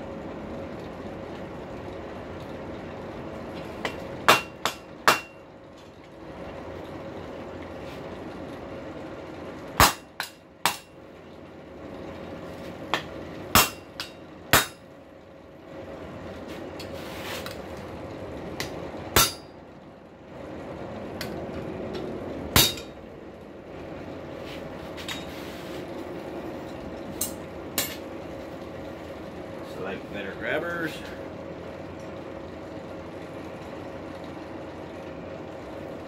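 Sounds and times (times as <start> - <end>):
steady background hum: 0.0 - 36.0
wooden mallet striking metal on anvil: 3.8 - 5.4, 9.8 - 11.0, 12.9 - 14.8, 19.2 - 19.6, 22.6 - 23.0.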